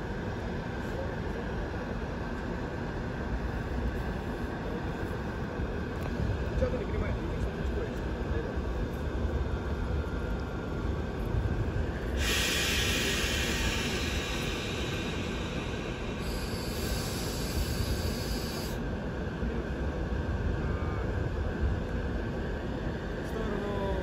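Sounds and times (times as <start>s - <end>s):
low rumble of running equipment: 0.0s - 24.0s
compressed air hissing: 12.1s - 18.8s.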